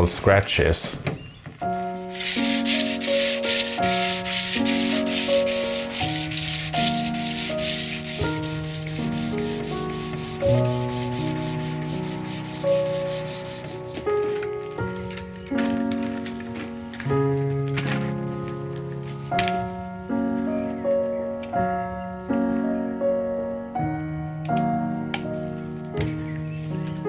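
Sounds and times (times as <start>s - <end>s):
background music sustained notes: 1.6s - 27.0s
sanding block rubbing wood: 1.9s - 14.4s.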